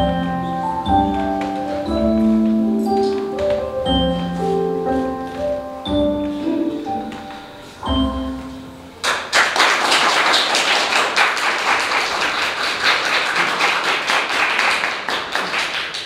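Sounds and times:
recorded backing music chord: 0.0 - 9.2
audience applauding: 9.0 - 16.0.

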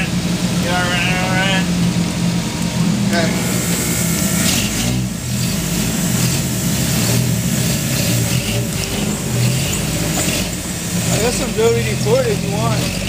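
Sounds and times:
truck engine revving unevenly: 0.0 - 13.0.

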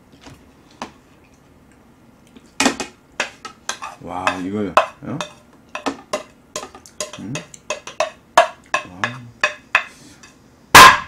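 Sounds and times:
spoon clicking on plastic dishes: 3.2 - 9.9.

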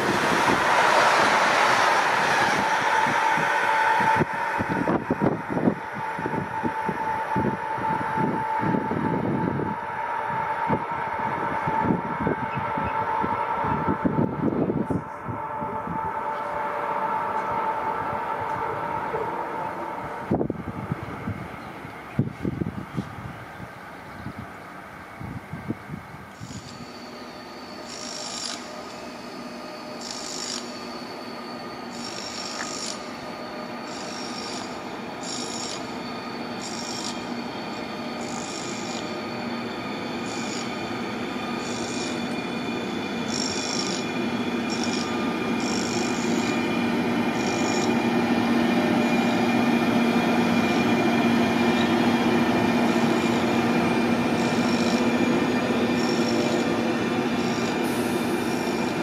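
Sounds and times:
electric locomotive passing: 0.0 - 59.0
traction whine: 0.0 - 59.0
short high squeaks: 26.4 - 48.0, 52.9 - 59.0.

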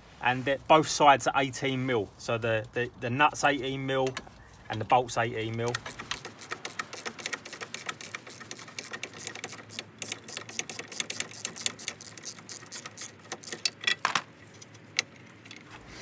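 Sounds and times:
socket ratchet clicking: 5.5 - 13.8.

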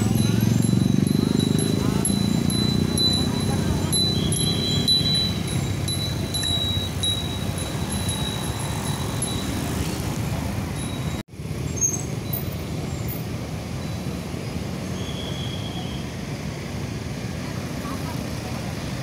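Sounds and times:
bicycle bells ringing: 0.0 - 11.2
motorbike engines rumbling: 0.0 - 19.0
road traffic: 0.0 - 19.0.

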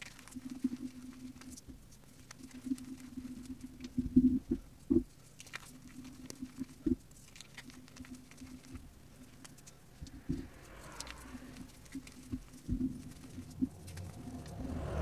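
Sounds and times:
chalk crumbs crackling: 0.0 - 15.0
fingers crushing chalk: 10.9 - 14.6.

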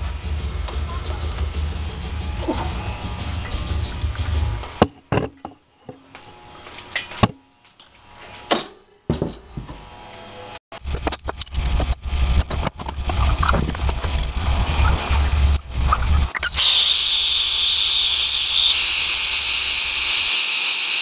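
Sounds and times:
steady low rumble: 0.0 - 4.8, 10.8 - 16.4.

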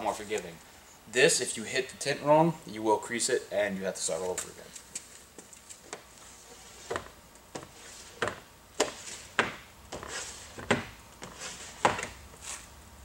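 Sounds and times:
squeegee scraping glass: 6.2 - 12.7.

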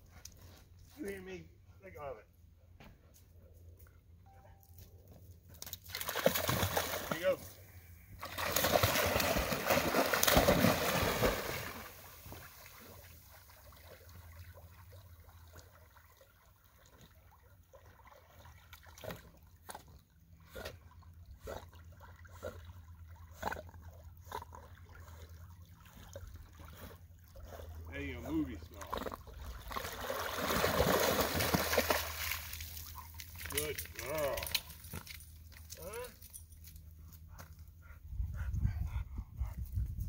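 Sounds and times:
dog splashing through water: 5.7 - 7.3, 8.2 - 19.9, 28.7 - 35.2
dog swimming in water: 8.1 - 33.5.

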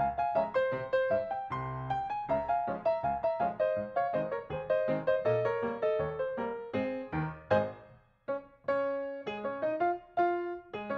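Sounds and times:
piano-like keyboard notes: 0.0 - 10.9.

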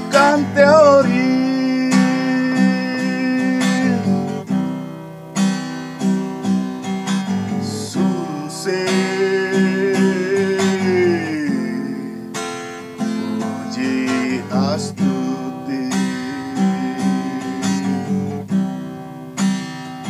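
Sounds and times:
man singing: 0.0 - 4.4, 7.5 - 12.4, 13.3 - 18.4
acoustic guitar strumming: 0.0 - 20.0.

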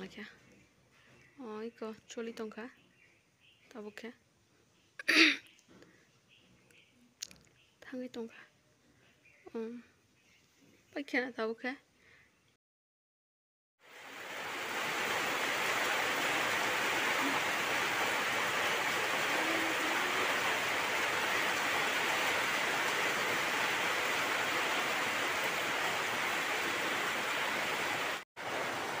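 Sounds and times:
steady rain falling: 13.8 - 29.0.

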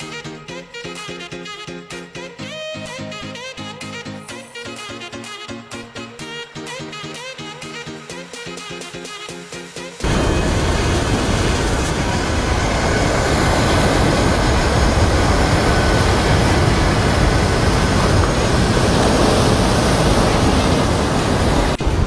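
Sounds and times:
wind buffeting microphone: 10.0 - 22.0.

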